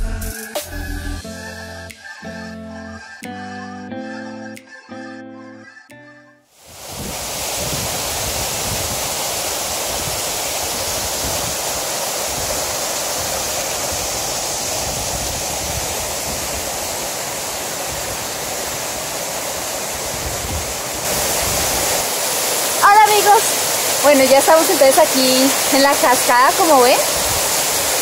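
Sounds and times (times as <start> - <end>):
waterfall rushing: 6.6 - 28.0.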